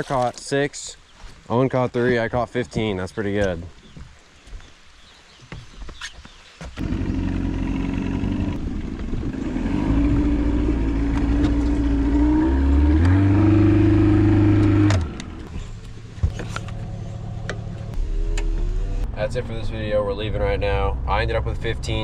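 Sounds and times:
engine running under load: 6.8s - 19.2s.

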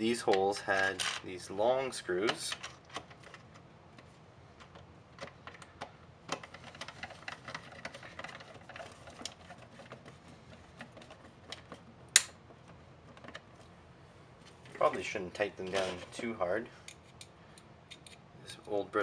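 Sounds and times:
screwdriver clicks and scrapes: 17.9s - 18.2s.

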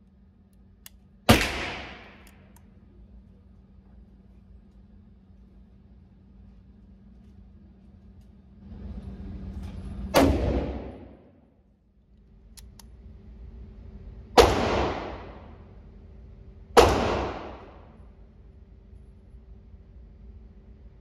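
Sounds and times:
loud gunshots echoing indoors: 1.3s - 2.3s, 10.1s - 11.5s, 14.4s - 15.8s, 16.7s - 18.1s.

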